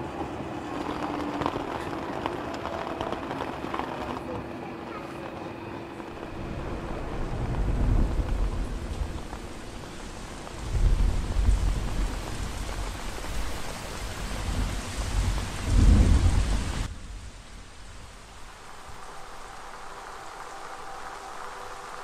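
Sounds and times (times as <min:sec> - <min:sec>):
steady rain on wet surface: 0:00.0 - 0:22.0
loud low rumbles: 0:06.2 - 0:12.8.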